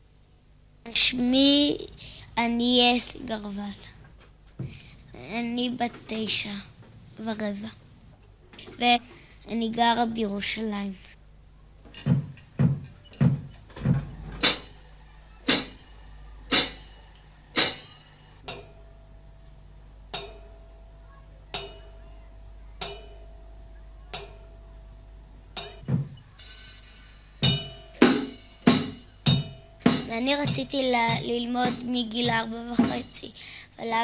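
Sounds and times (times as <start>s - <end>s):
drum struck with mallet: 12.0s - 14.8s, 15.4s - 15.8s, 16.5s - 19.0s, 20.1s - 22.1s, 22.8s - 33.1s.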